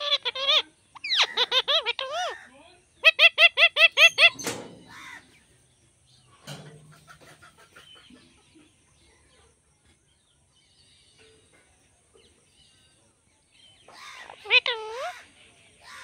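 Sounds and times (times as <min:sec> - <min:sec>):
parakeet calling: 0:00.0 - 0:05.4, 0:13.9 - 0:16.0
faint bird chatter: 0:00.0 - 0:16.0.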